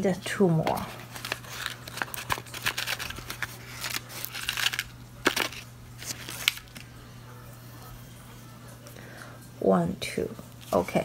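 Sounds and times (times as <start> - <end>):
low steady hum: 0.0 - 11.0
seed packet rustling: 0.6 - 6.9.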